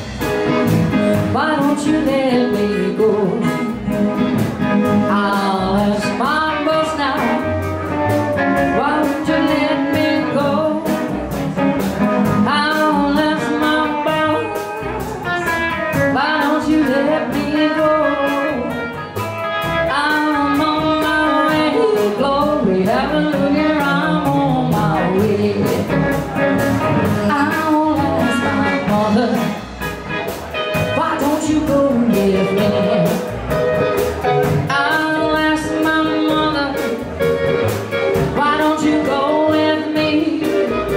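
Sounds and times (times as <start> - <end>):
blues band playing: 0.0 - 40.9
woman singing lead: 0.0 - 40.9.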